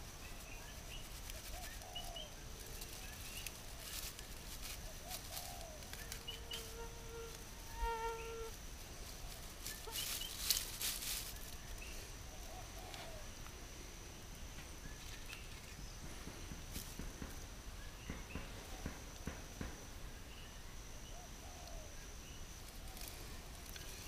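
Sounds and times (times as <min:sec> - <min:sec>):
dry tinder rustling and crackling: 0:00.0 - 0:12.0
high insect hum: 0:00.0 - 0:24.0
faint bird calls: 0:00.5 - 0:08.5, 0:09.2 - 0:13.6, 0:20.4 - 0:24.0.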